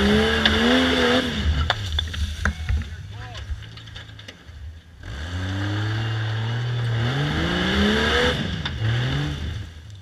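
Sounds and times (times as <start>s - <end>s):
buggy engine revving hard: 0.0s - 1.7s, 5.0s - 9.9s.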